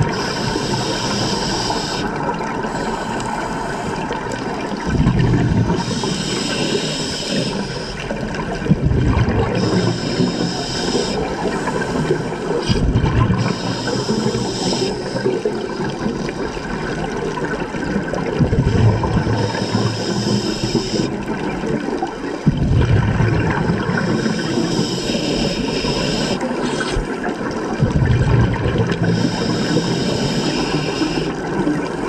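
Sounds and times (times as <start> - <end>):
regulator hissing inhalations: 0.1 - 4.1, 5.8 - 8.1, 9.6 - 12.8, 13.4 - 15.4, 19.4 - 21.1, 24.0 - 27.1, 29.1 - 31.4
exhaled bubbles bursting: 4.0 - 6.0, 8.0 - 10.4, 11.0 - 14.4, 15.1 - 19.8, 20.4 - 24.8, 25.8 - 30.2.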